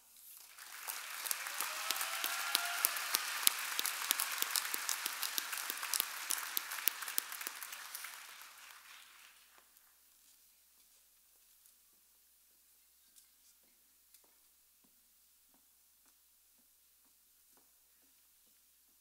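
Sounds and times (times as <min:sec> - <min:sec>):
audience applauding: 0:00.4 - 0:09.8.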